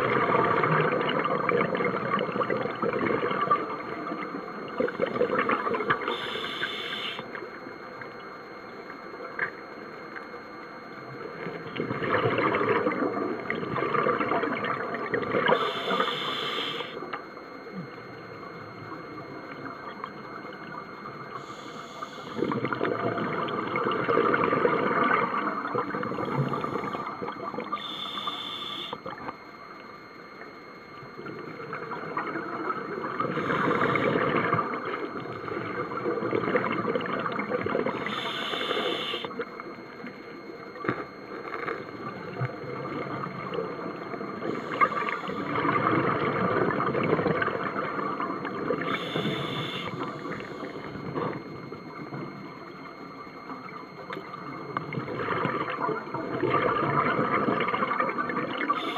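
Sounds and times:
exhaled bubbles rushing: 0.0 - 6.4, 11.6 - 15.6, 22.4 - 27.8, 31.2 - 38.1, 42.0 - 52.3, 54.0 - 58.8
regulator breathing underwater: 6.1 - 7.2, 15.5 - 17.0, 27.8 - 29.0, 33.3 - 34.2, 38.0 - 39.3, 48.8 - 50.8.

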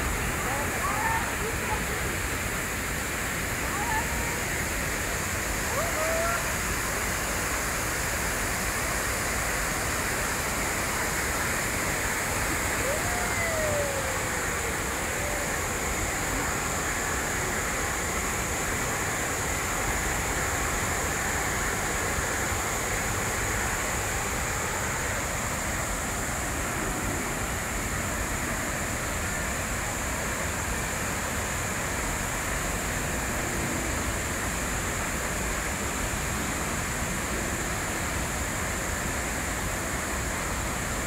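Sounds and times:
water rushing into pools: 0.0 - 41.0.

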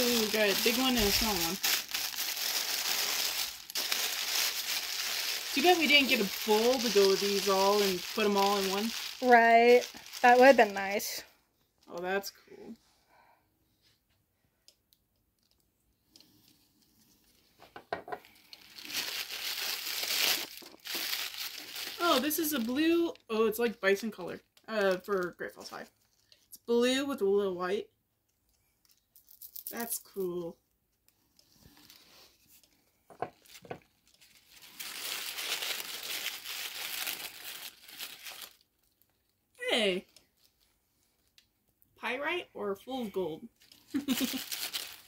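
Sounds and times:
tissue paper rustling: 0.0 - 11.2, 18.3 - 22.9, 31.6 - 32.6, 33.4 - 38.6, 43.6 - 45.0.

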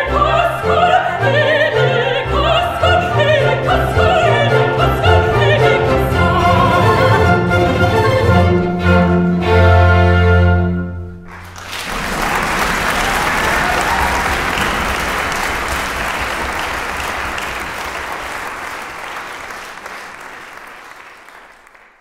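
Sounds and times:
orchestra chord: 0.1 - 11.2
audience applause: 11.2 - 22.0.

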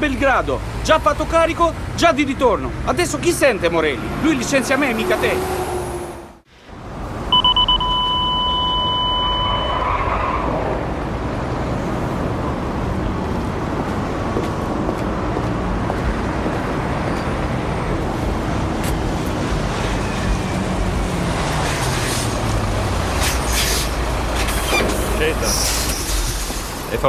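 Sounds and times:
truck road noise rumble: 0.0 - 27.0
steady high tone: 7.3 - 9.8.

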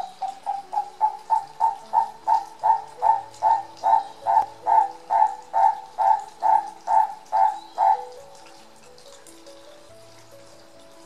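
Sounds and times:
bird calling rhythmically: 0.0 - 8.7.

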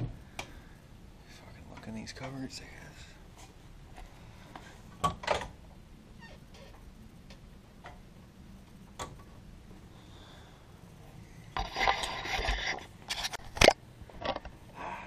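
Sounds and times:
rubbing and scraping: 11.6 - 13.8.

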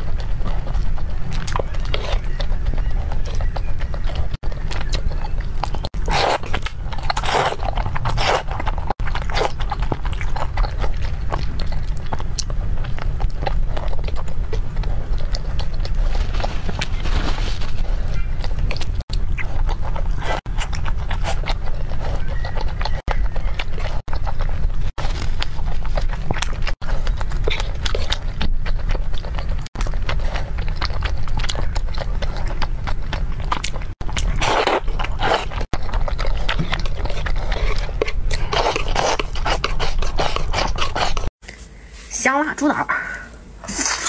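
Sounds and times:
slurping noodles: 5.8 - 11.7, 33.6 - 41.3, 43.6 - 44.0.

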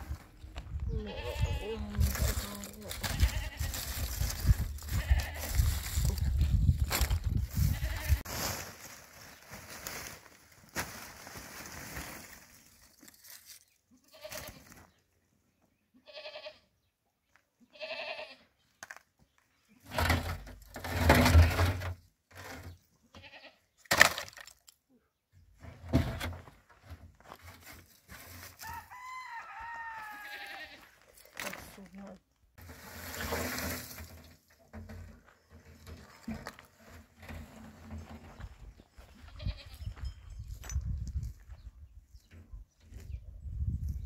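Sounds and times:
livestock bleating: 0.8 - 3.9, 4.9 - 5.7, 7.6 - 8.3, 13.9 - 14.7, 15.9 - 16.7, 17.7 - 18.4, 23.1 - 23.6, 29.8 - 31.0, 39.3 - 39.9
rustling and knocks: 32.6 - 38.7.

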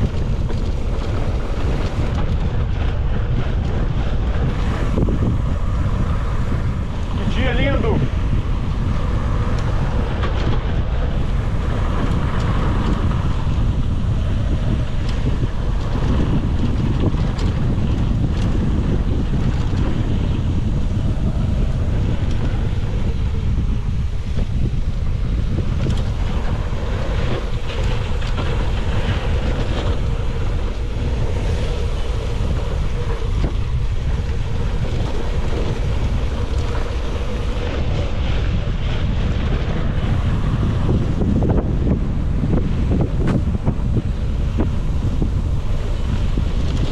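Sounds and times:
bike clicks and rattles: 0.0 - 46.9
wind buffeting microphone: 0.0 - 46.9.

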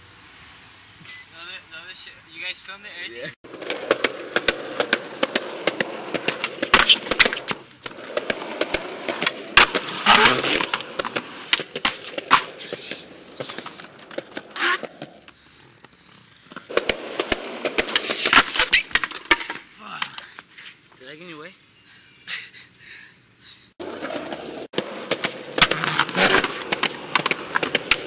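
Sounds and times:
skateboard wheels rolling on pavement: 2.3 - 20.8, 23.8 - 28.0
skateboard trucks scraping concrete: 2.4 - 21.0, 23.8 - 28.0
skateboard pops and landing clacks: 3.6 - 15.3, 16.5 - 20.2, 24.0 - 28.0.

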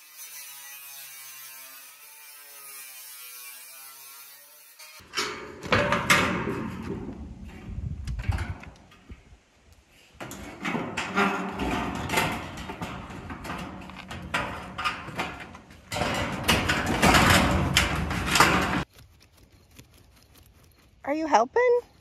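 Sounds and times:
metal panels scraping and rattling: 4.8 - 9.2, 10.1 - 18.9
metallic clanks and clicks: 10.2 - 18.9.

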